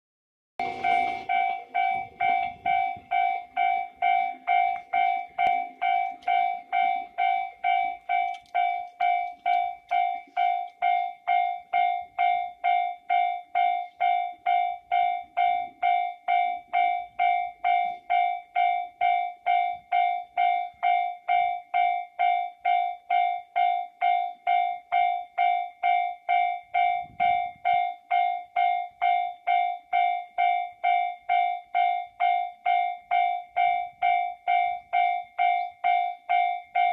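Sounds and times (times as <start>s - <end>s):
level-crossing warning bell ringing: 0.6s - 36.9s.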